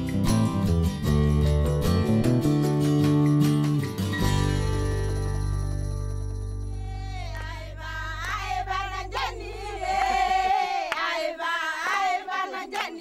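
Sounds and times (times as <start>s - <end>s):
acoustic guitar chord ringing: 0.5s - 7.9s
women singing: 6.8s - 13.0s.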